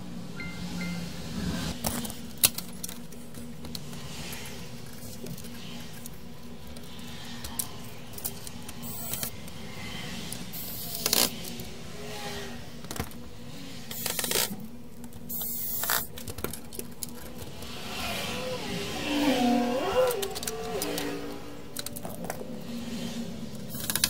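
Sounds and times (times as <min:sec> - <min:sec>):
plastic parts scraping and knocking: 0:21.7 - 0:22.9, 0:23.5 - 0:24.0.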